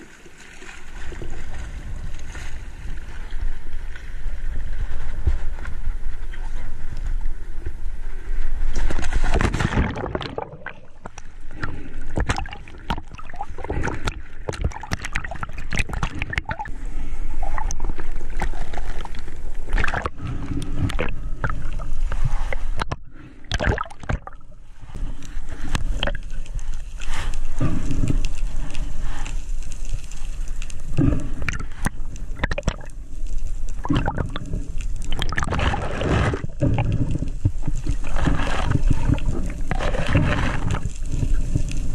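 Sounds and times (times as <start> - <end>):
sharp underwater clicks: 9.0 - 16.7, 25.2 - 41.8
muffled underwater gurgling: 9.4 - 24.5, 30.8 - 33.0, 33.8 - 41.9.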